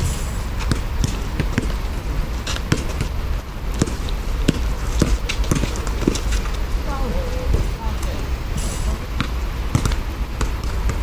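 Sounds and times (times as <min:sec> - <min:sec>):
low rumble: 0:00.0 - 0:11.0
players' footsteps: 0:00.0 - 0:11.0
basketball bouncing on asphalt: 0:00.5 - 0:06.7, 0:09.2 - 0:11.0.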